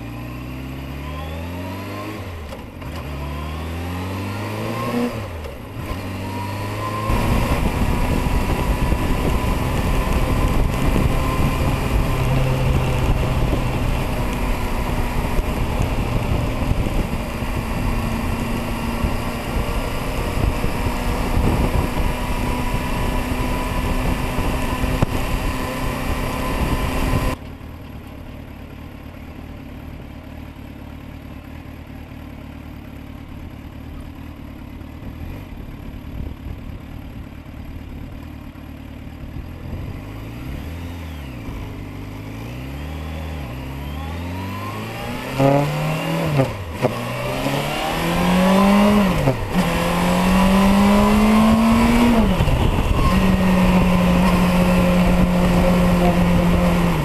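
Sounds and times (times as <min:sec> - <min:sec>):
motorcycle engine accelerating: 0:00.0 - 0:57.0
wind rush: 0:07.0 - 0:27.4, 0:47.1 - 0:57.0.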